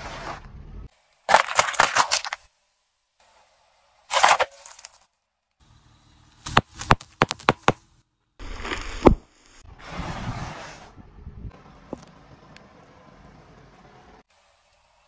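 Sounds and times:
car tyre crushing small objects: 0:01.2 - 0:02.5, 0:04.1 - 0:05.2, 0:06.4 - 0:09.3.

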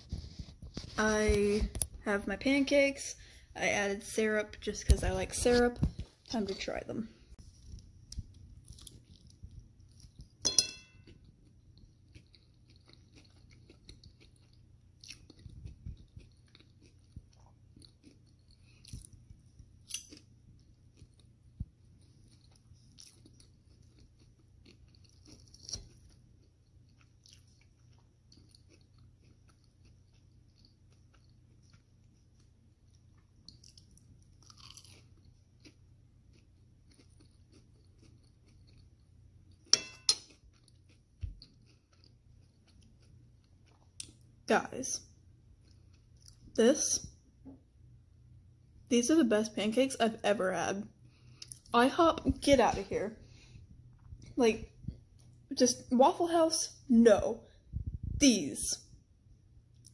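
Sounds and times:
person chewing: 0:07.4 - 0:44.4, 0:45.4 - 0:46.6, 0:51.0 - 0:51.7
sharp clink: 0:10.4 - 0:11.1, 0:39.7 - 0:40.2.

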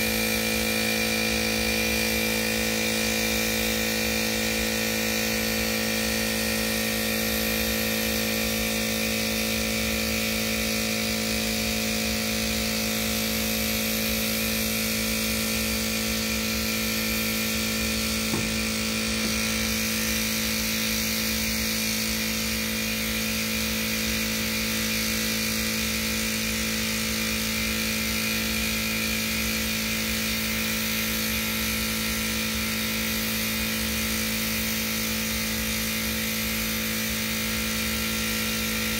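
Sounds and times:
air compressor humming: 0:00.0 - 0:38.9
paint spray gun hissing: 0:03.0 - 0:25.5.

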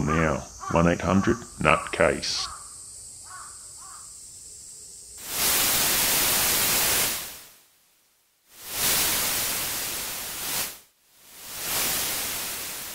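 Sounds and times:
television static hiss: 0:03.8 - 0:12.9.

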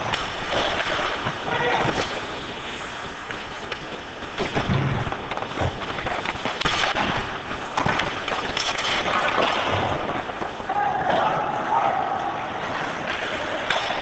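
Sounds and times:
skates and sticks on ice: 0:00.0 - 0:14.0.

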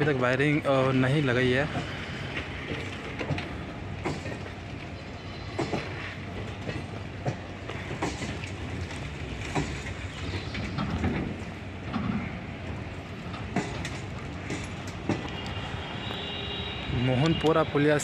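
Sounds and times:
train coaches rumbling past: 0:00.0 - 0:18.0
wheel clacks over rail joints: 0:01.7 - 0:04.9, 0:05.5 - 0:16.3.

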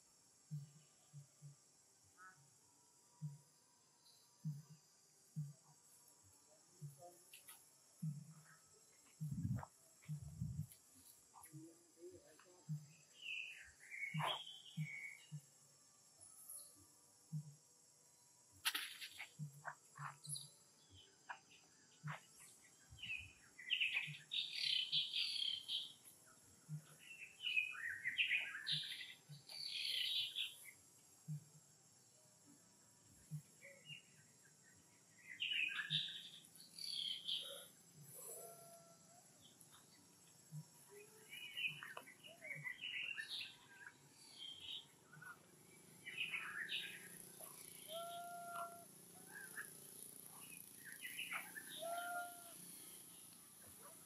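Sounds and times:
birds chirping: 0:06.6 - 0:15.6, 0:18.7 - 0:31.4, 0:33.3 - 0:54.0.

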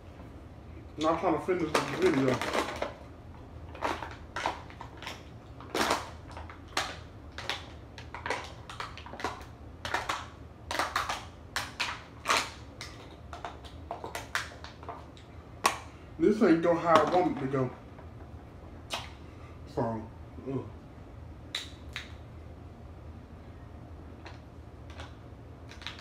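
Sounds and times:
crunching while eating: 0:01.0 - 0:03.0, 0:03.6 - 0:15.8, 0:24.2 - 0:26.0.

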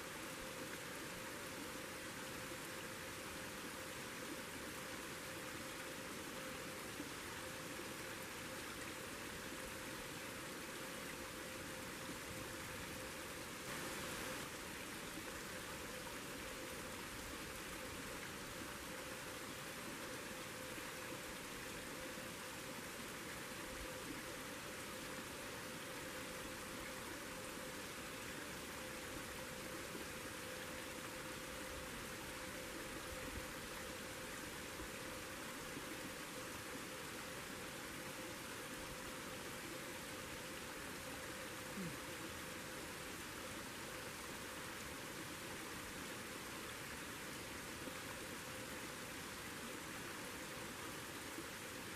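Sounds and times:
faint steady hum: 0:00.0 - 0:51.9
creek rushing: 0:12.9 - 0:20.1.

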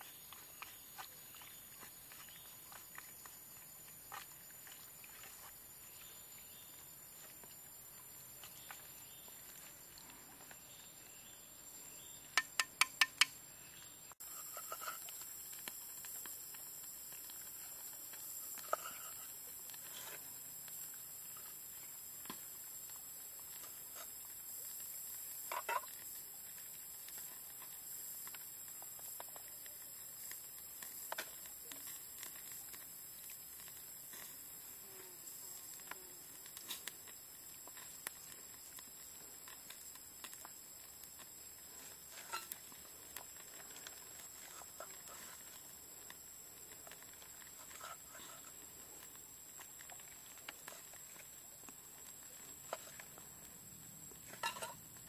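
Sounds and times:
chopsticks tapping clay pot: 0:12.3 - 0:13.4.

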